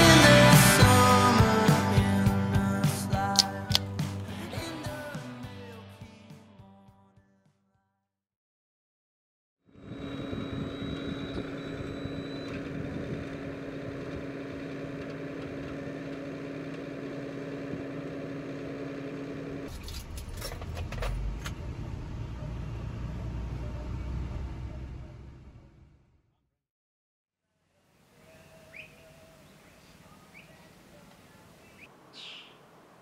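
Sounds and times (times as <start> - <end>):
truck rumble from cab: 9.9 - 26.2
tow truck humming: 10.0 - 26.1
knocks and rattles: 19.7 - 21.6.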